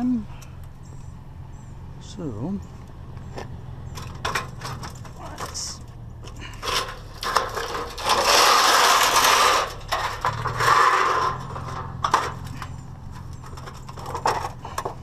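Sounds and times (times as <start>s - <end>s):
sheet metal crumpling: 6.5s - 14.8s.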